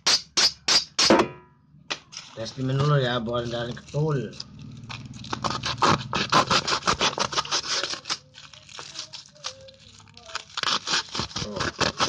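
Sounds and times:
wrapping material crinkling: 2.2 - 12.0.

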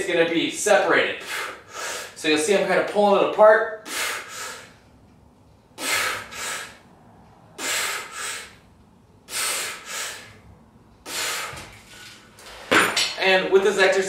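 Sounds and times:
man breathing: 1.2 - 2.2, 3.8 - 5.0, 5.7 - 12.1.

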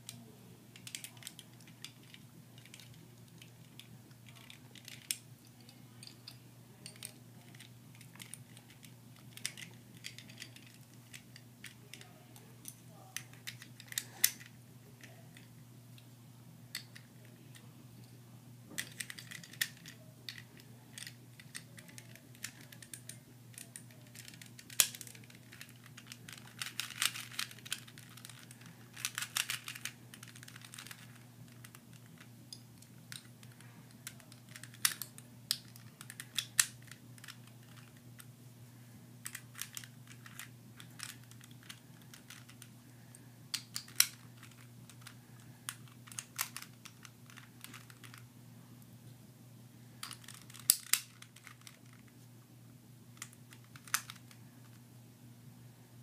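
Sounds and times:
plastic cube pieces clicking: 18.8 - 32.2, 43.5 - 48.2, 50.0 - 52.0, 53.2 - 54.3.

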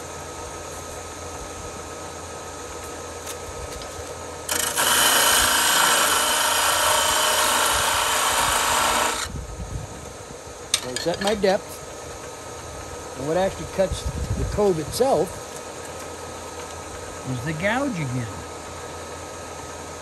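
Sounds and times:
parting tool scraping spinning wood: 3.3 - 9.3
lathe running: 4.4 - 9.3.

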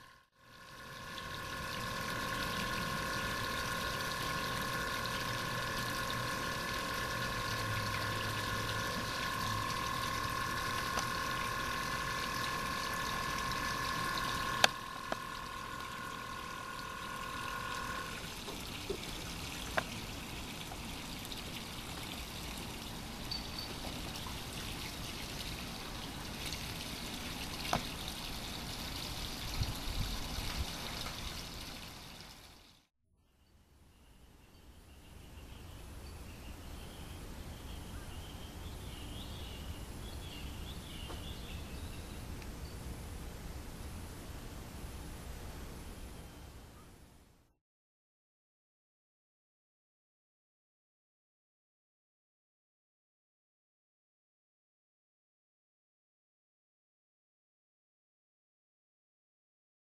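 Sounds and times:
air pump whine: 0.0 - 32.0
water bubbling and trickling: 0.0 - 32.8.

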